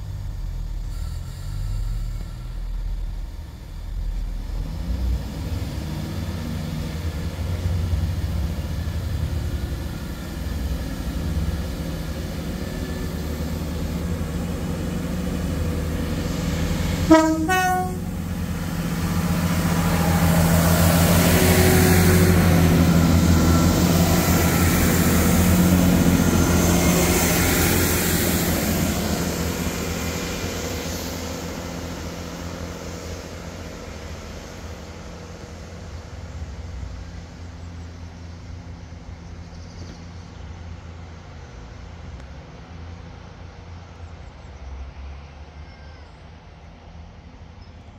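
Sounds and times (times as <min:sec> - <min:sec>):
diesel train engines running: 0:00.0 - 0:47.9
train horn toot: 0:00.9 - 0:02.8, 0:17.1 - 0:18.4.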